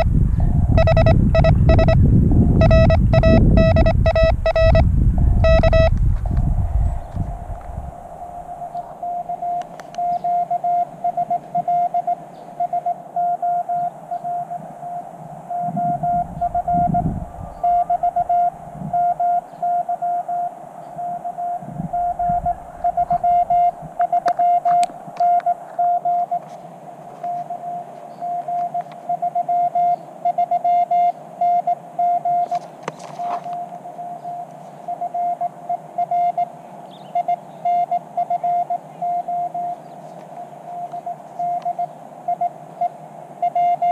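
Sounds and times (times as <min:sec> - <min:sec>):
morse code beeps: 0:00.0 - 0:06.0, 0:08.3 - 0:26.4, 0:27.2 - 0:32.6, 0:33.4 - 0:39.8, 0:40.7 - 0:43.9
low rumbles: 0:00.0 - 0:09.5, 0:15.8 - 0:19.0.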